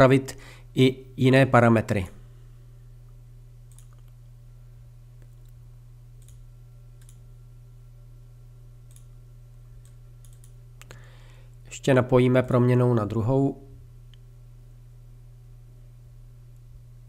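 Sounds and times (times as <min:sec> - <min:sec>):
steady low hum: 0:00.0 - 0:17.0
computer mouse clicks: 0:03.7 - 0:04.2, 0:06.2 - 0:06.4, 0:07.0 - 0:07.2, 0:08.9 - 0:09.1, 0:09.8 - 0:10.6.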